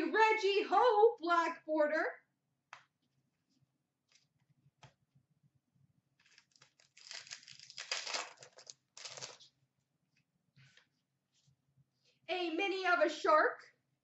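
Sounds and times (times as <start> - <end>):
wrapper tearing and crinkling: 6.2 - 9.5.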